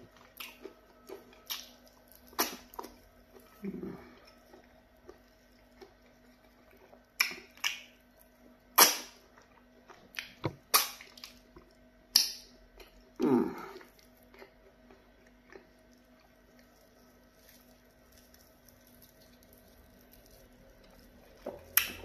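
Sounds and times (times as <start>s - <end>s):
low long mouth sound: 13.2s - 13.9s.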